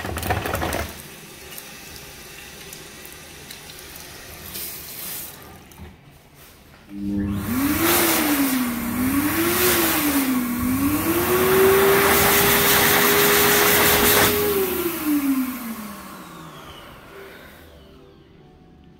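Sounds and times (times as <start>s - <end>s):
electric hand dryer blowing: 6.9s - 18.1s
motor spinning down: 7.0s - 18.2s.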